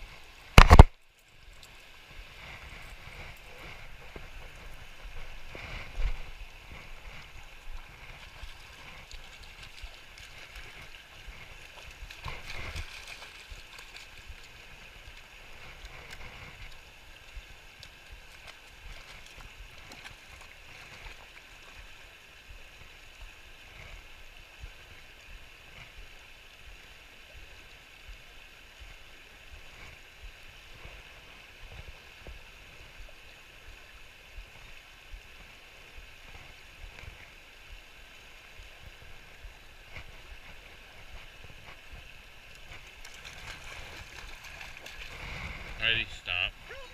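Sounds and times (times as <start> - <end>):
river rushing over riffles: 28.8 - 46.9.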